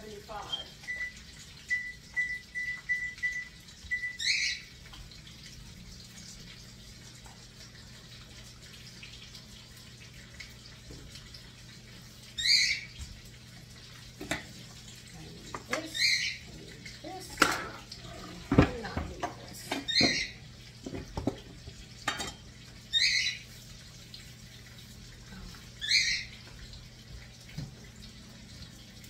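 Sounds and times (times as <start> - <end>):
low steady hum: 0.0 - 29.0
oven control panel beeping: 0.5 - 4.2.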